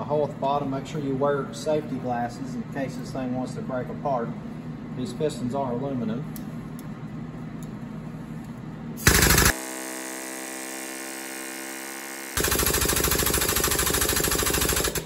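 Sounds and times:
air pump rattling: 9.0s - 9.6s.

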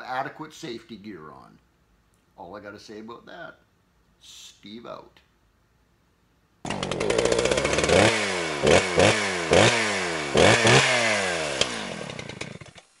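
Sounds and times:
chainsaw engine revving: 6.6s - 13.0s.

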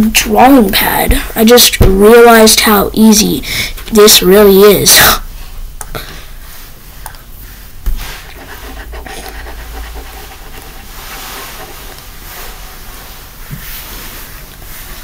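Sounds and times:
close breathing: 3.4s - 3.8s.

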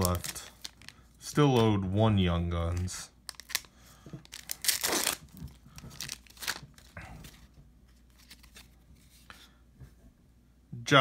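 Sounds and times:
foil wrapper tearing and crinkling: 0.0s - 1.8s, 2.7s - 7.0s
foil rustling: 0.0s - 2.0s, 2.6s - 7.5s.

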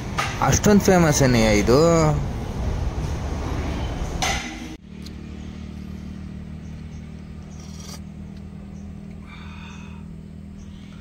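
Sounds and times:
car engine idling: 4.2s - 11.0s.

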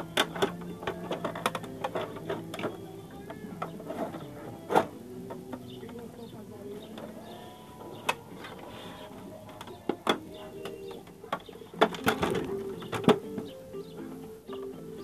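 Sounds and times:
clicks and knocks on plastic: 0.2s - 6.1s.

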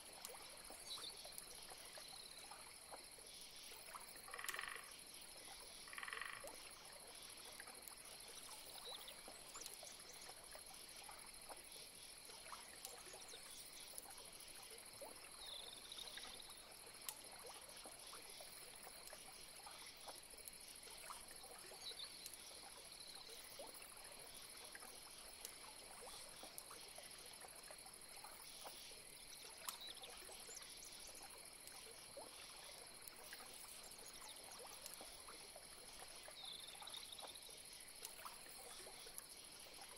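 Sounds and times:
frogs calling in clicks: 0.0s - 39.9s.

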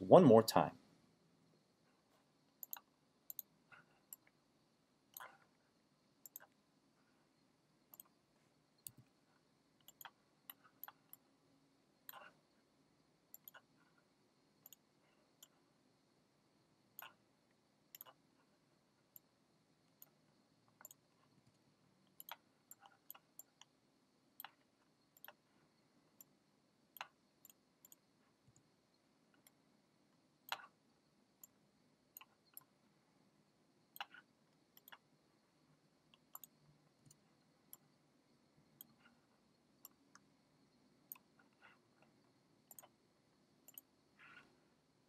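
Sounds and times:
background hiss: 0.0s - 45.0s
computer mouse clicks: 2.6s - 4.4s, 5.1s - 5.5s, 6.2s - 6.6s, 7.9s - 8.2s, 8.8s - 9.2s, 9.8s - 11.3s, 12.0s - 12.4s, 13.3s - 13.7s, 14.6s - 15.6s, 16.9s - 17.2s, 17.9s - 18.2s, 19.9s - 23.8s, 24.4s - 25.4s, 26.2s - 28.6s, 29.3s - 29.6s, 30.4s - 30.8s, 31.4s - 32.7s, 33.9s - 35.1s, 36.1s - 37.9s, 38.8s - 39.2s, 39.8s - 40.3s, 41.1s - 43.0s, 43.6s - 44.5s.

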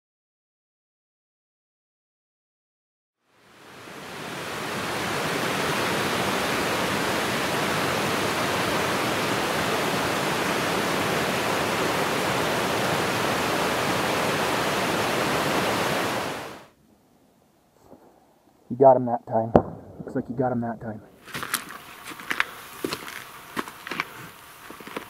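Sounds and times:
mountain stream rushing: 3.3s - 16.7s, 21.2s - 25.0s.

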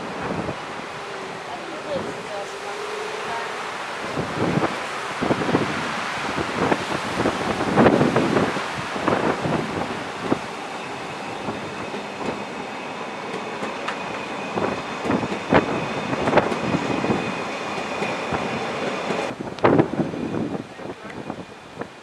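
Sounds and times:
train wheels clicking on rail joints: 9.8s - 19.4s.

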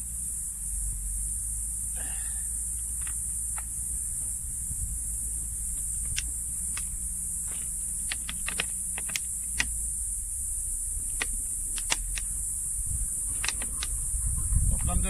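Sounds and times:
high-pitched insect drone: 0.0s - 15.0s
twig fire crackling: 5.0s - 14.0s
sharp clicks of plastic bottles: 7.5s - 9.8s, 11.1s - 12.3s, 13.3s - 13.9s.

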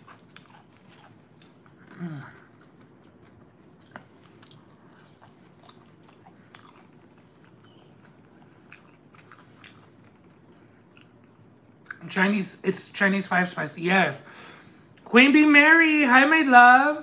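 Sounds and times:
chewing with wet mouth clicks: 0.0s - 12.0s
small food crunches: 0.0s - 12.0s.

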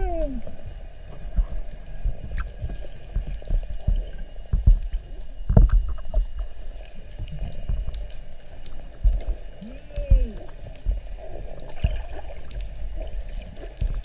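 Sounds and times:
water sloshing and gurgling: 0.0s - 14.0s
low underwater thuds: 1.2s - 6.5s, 9.0s - 12.6s.

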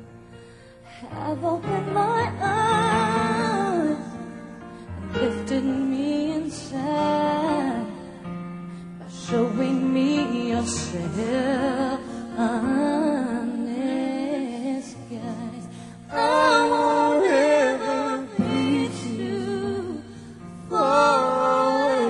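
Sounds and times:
soft sustained accompaniment: 0.0s - 22.0s
woman singing a ballad: 0.8s - 22.0s.

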